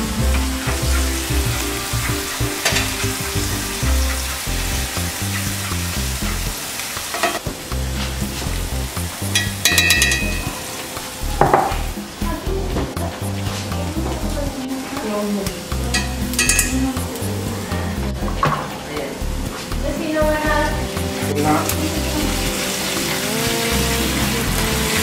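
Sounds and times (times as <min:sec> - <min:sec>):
pastes sizzling in hot oil: 0:00.0 - 0:12.3, 0:12.9 - 0:18.0, 0:18.6 - 0:25.0
short ringing clink: 0:16.0 - 0:16.8.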